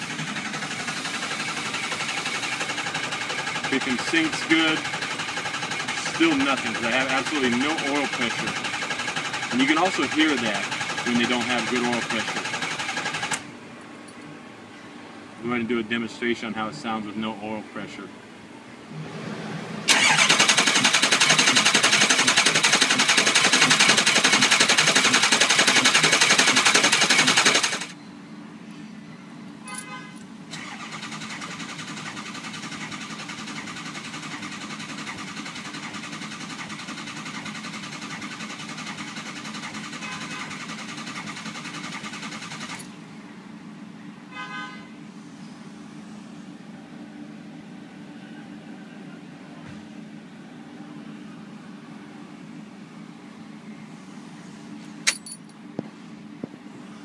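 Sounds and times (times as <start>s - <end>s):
diesel engine cranking: 0.0s - 13.5s, 18.9s - 28.0s, 30.5s - 43.0s.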